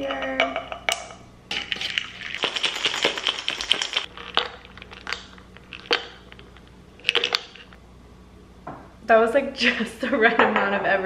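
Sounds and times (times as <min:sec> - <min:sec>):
glass jar rattling when shaken: 0:01.6 - 0:07.7.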